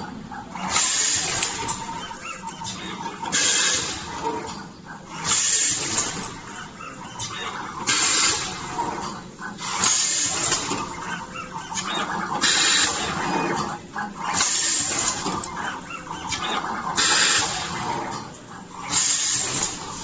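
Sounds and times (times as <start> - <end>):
compressed air hiss: 18.9 - 19.7.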